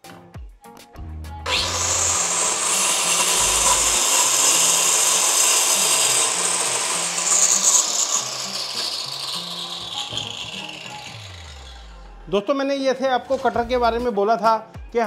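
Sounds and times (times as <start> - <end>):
circular saw cutting plywood: 1.4 - 12.4.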